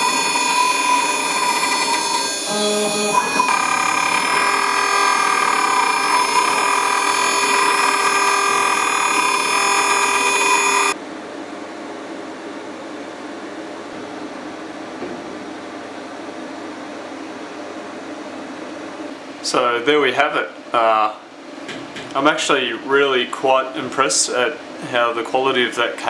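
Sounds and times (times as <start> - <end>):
cnc spindle whining: 0.0 - 11.0.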